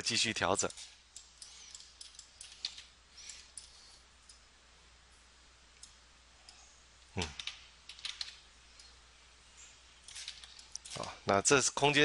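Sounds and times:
low room hum: 0.0s - 12.0s
computer mouse clicks: 0.7s - 4.4s, 5.8s - 6.6s, 7.2s - 9.0s, 10.1s - 11.1s.

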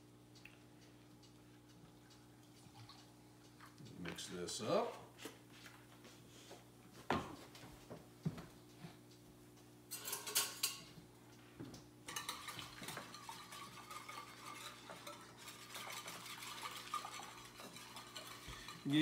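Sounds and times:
whisk clattering against dish: 12.1s - 19.0s.

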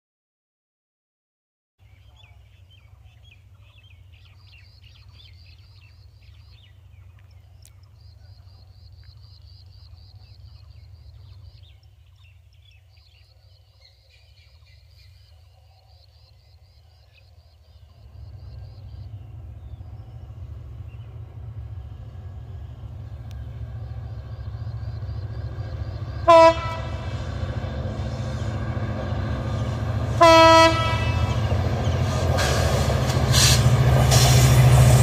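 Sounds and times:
birds chirping: 1.8s - 34.0s
steady low rumble: 17.4s - 30.2s.

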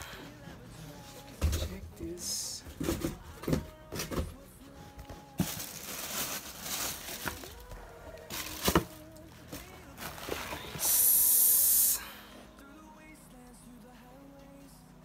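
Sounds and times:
tissue paper rustling: 5.2s - 11.1s
loud steady hiss: 10.6s - 12.3s.

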